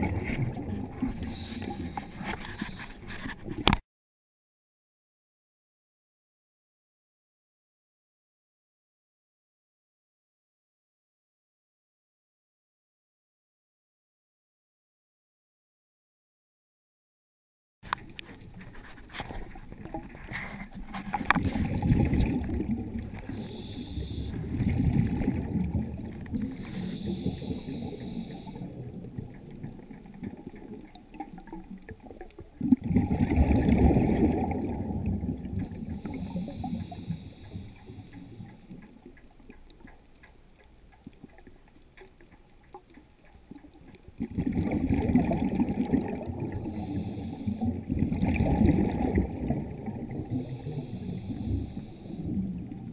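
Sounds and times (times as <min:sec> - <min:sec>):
underwater bubbles rushing: 0:00.0 - 0:03.8, 0:17.9 - 0:52.9.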